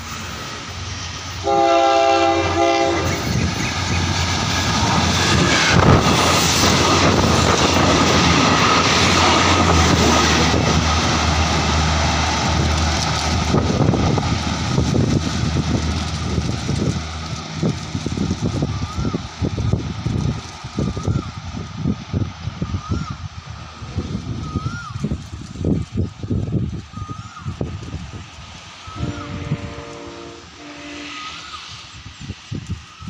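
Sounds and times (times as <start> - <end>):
diesel train passing: 0.0 - 33.0
train horn blast: 1.4 - 3.4, 28.9 - 31.5
wheels clicking over rail joints: 3.2 - 22.2.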